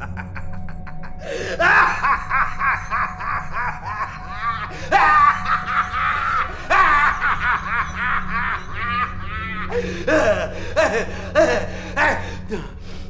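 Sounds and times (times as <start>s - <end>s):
man laughing loudly: 0.0s - 12.6s.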